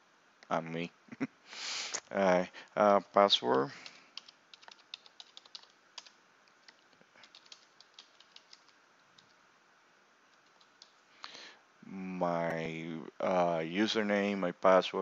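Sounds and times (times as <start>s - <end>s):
keyboard typing clicks: 3.8s - 9.4s, 10.3s - 11.0s.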